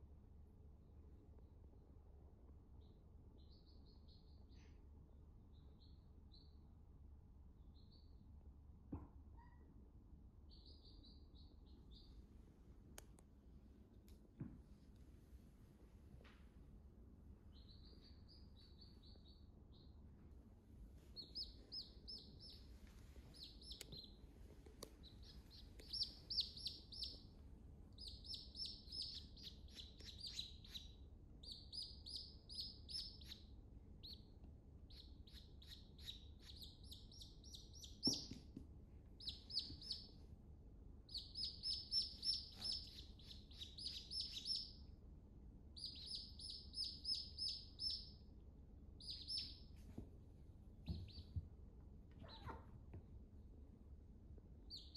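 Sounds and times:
baby chicks peeping: 0:10.5 - 0:12.1, 0:17.5 - 0:20.0, 0:21.1 - 0:27.3, 0:27.9 - 0:40.2, 0:41.1 - 0:44.8, 0:45.8 - 0:48.1, 0:49.0 - 0:49.7, 0:50.8 - 0:51.4, 0:54.7 - 0:54.9.

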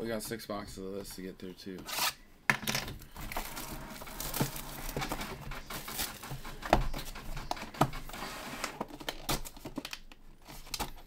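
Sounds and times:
plastic wrapping crinkling and tearing: 0:03.2 - 0:07.2.

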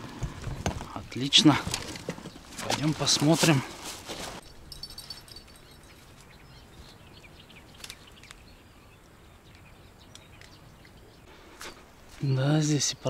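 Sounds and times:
bird chirps: 0:04.4 - 0:13.0.

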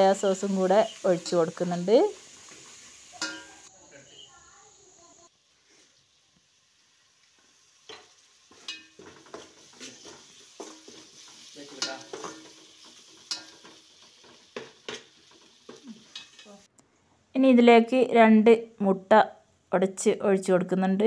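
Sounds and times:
light sizzle of frying: 0:00.0 - 0:16.7
spoon clinking against pot: 0:03.2 - 0:03.7, 0:07.9 - 0:11.0, 0:11.8 - 0:12.5, 0:13.2 - 0:15.0, 0:15.7 - 0:16.6
metal spoon scraping a pot: 0:07.9 - 0:16.6.

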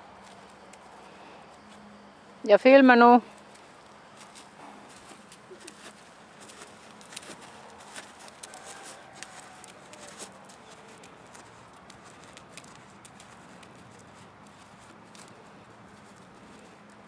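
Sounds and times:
horse hoof steps on sand: 0:04.2 - 0:17.0.

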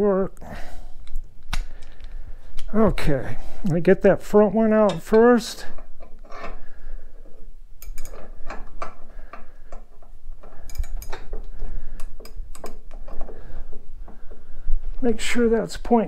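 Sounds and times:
hand tools clicking metal on metal: 0:04.8 - 0:06.6, 0:07.8 - 0:13.2.

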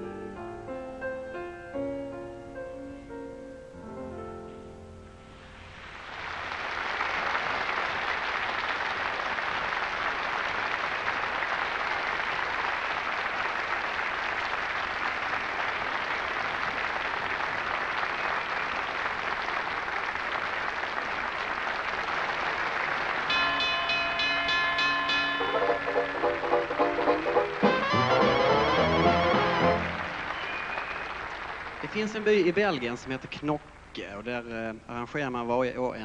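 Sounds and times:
audience applauding: 0:05.8 - 0:33.6.

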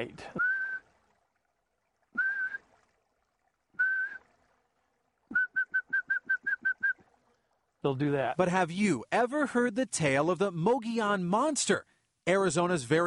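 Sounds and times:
man whistling high note: 0:00.4 - 0:00.9, 0:02.2 - 0:02.7, 0:03.8 - 0:04.3, 0:05.3 - 0:07.0.

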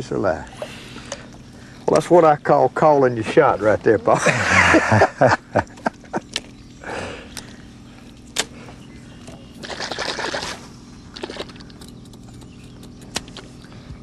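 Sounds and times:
fish splashing at water surface: 0:09.6 - 0:11.7.

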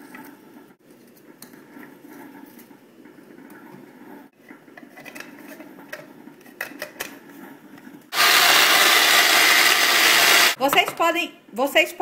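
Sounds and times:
food processor motor running: 0:08.1 - 0:10.6.

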